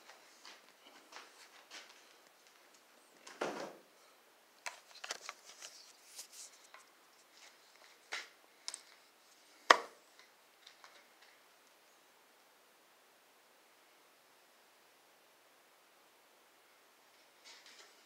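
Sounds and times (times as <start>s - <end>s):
handling rustling and clicks: 4.6s - 9.0s.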